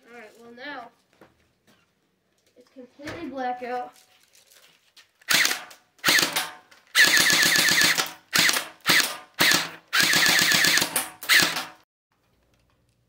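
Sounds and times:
airsoft gun shots: 5.3 - 11.8.

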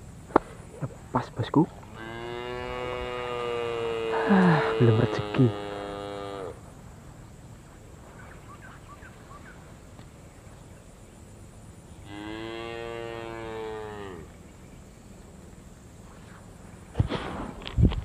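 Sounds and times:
cow mooing: 1.9 - 6.6, 12.1 - 14.3.

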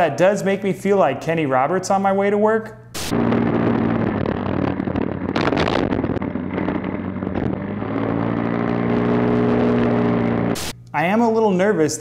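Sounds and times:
scooter engine running: 3.0 - 10.8
wind on microphone: 3.1 - 8.9.

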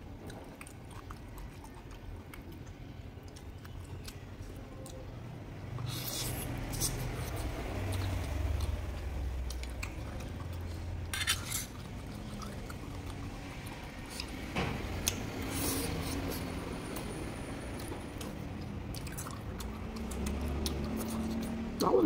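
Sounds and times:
close chewing: 0.2 - 5.1, 5.7 - 17.1, 17.7 - 22.0
metal fork scraping metal pot: 11.1 - 11.8.

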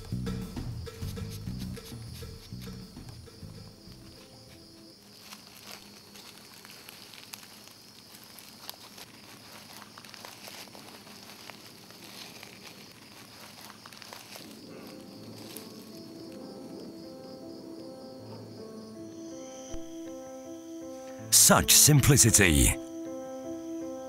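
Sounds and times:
night insects buzzing: 0.0 - 10.0, 11.1 - 21.3, 22.8 - 24.0
dry leaves rustling and crackling: 5.0 - 15.9.

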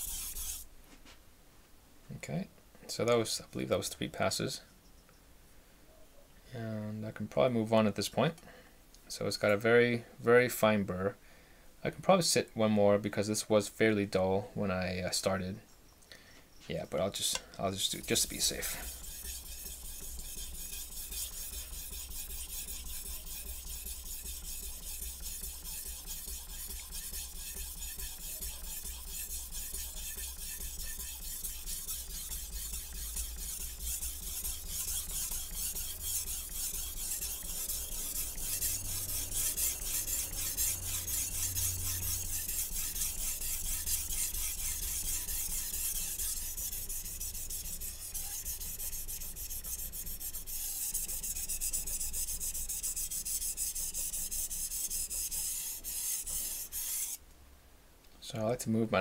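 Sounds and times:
knife scraping on whetstone: 0.0 - 0.7, 17.2 - 57.2.

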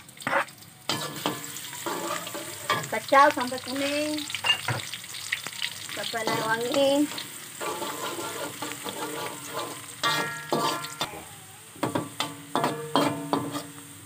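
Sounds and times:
oil sizzling in a wok: 0.0 - 14.0
metal spatula scraping a wok: 0.2 - 3.0, 6.0 - 13.8.

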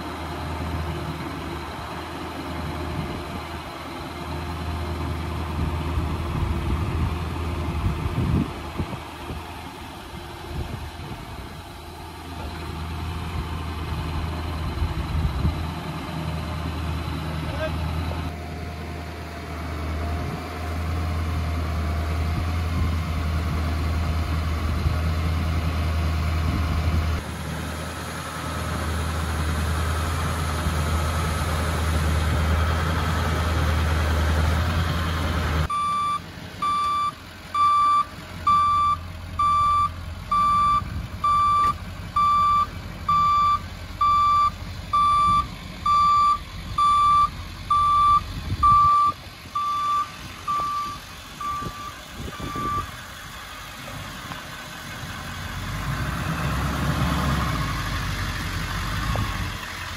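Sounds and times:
truck engine running: 0.0 - 59.9
back-up alarm beeping: 35.7 - 52.9.

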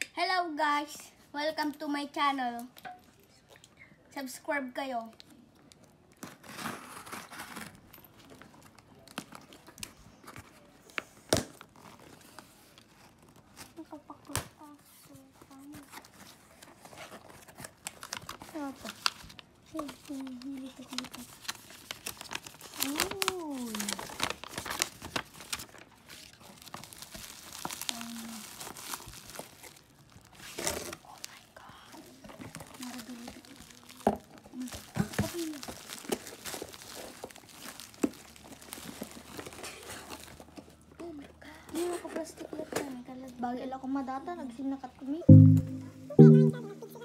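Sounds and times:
crinkles and clicks: 5.1 - 40.8.

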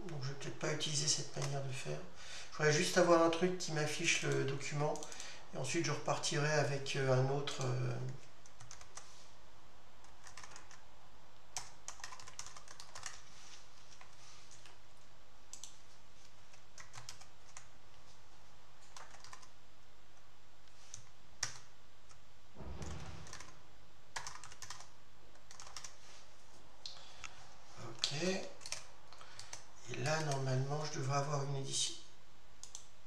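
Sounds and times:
computer keyboard typing: 5.0 - 5.2, 7.6 - 9.1, 10.0 - 10.8, 11.6 - 13.3, 15.5 - 15.8, 16.5 - 17.8, 18.8 - 19.5, 20.9 - 22.2, 23.2 - 23.5, 24.2 - 26.0, 28.0 - 30.5, 32.6 - 32.9.

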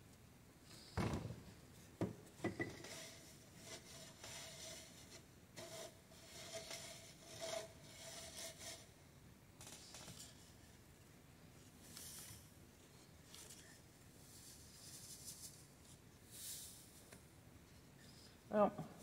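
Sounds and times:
seeds rustling on a sieve: 13.2 - 17.0.

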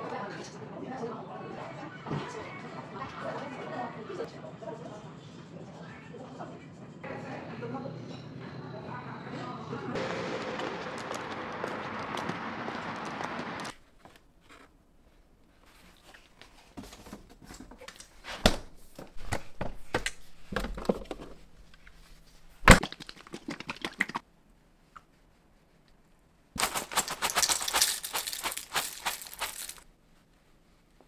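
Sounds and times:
dense crackling: 10.0 - 13.8
handling clicks and knocks: 26.6 - 29.8.

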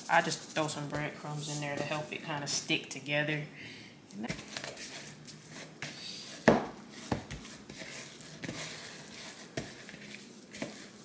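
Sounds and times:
hands kneading meat squishing: 4.3 - 11.0.

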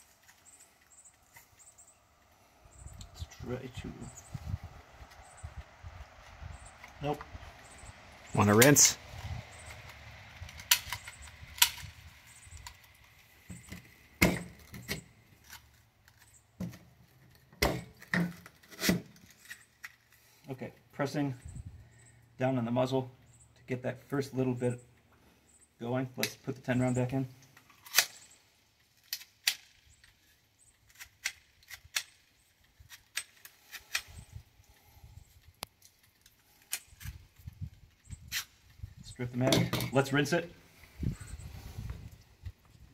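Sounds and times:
sharp metallic pistol clicks: 10.5 - 12.0.

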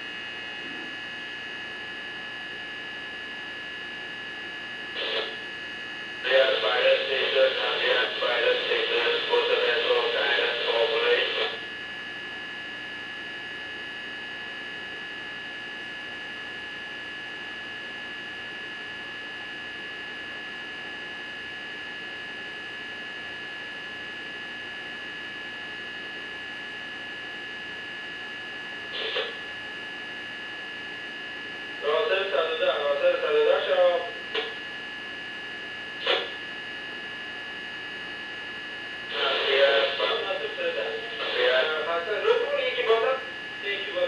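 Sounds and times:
electrical hum with high whine: 0.0 - 44.0.

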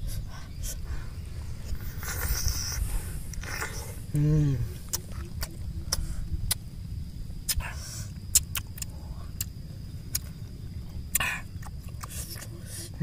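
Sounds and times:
person biting and sucking fruit: 1.6 - 6.6, 7.4 - 10.3, 11.1 - 13.0
person humming: 4.1 - 5.0
wet mouth clicks: 4.8 - 6.6, 7.4 - 10.3.

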